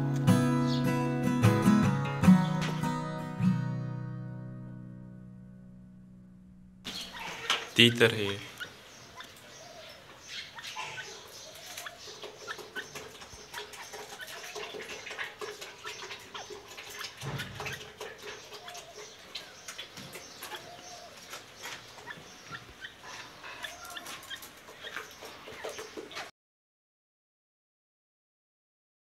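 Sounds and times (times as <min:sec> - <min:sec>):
light clicks and chirps: 0:06.9 - 0:26.3
partridge soft calls: 0:06.9 - 0:26.3.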